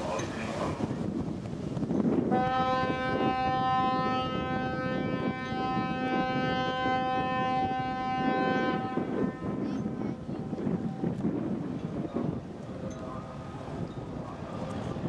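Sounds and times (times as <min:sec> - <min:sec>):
harbour noise: 0:00.0 - 0:15.0
low wind: 0:00.0 - 0:15.0
ship's horn blast: 0:02.2 - 0:11.0.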